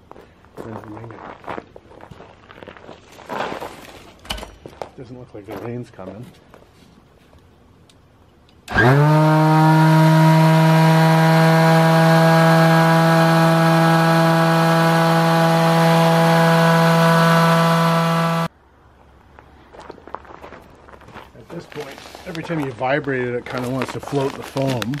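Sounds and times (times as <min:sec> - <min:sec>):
electric vibrator motor humming: 0:08.7 - 0:18.5.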